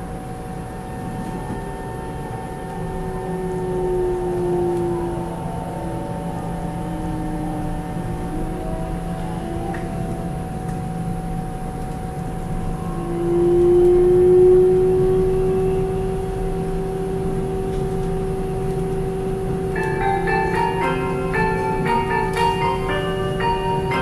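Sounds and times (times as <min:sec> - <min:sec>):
electric train running: 0:00.0 - 0:24.0
whining electric drive: 0:00.0 - 0:24.0.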